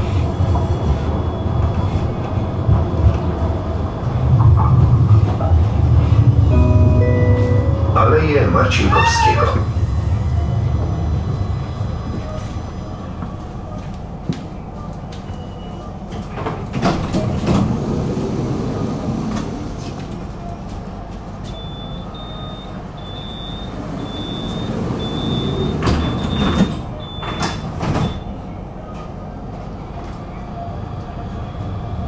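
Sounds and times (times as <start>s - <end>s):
tram low rumble: 0.0s - 32.0s
sliding doors clunking: 16.0s - 28.4s
short high warning beeps: 21.6s - 28.3s.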